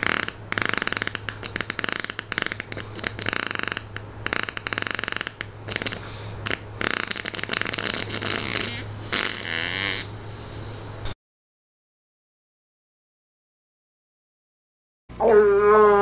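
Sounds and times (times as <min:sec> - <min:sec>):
long fluttering fart: 0:00.0 - 0:10.3.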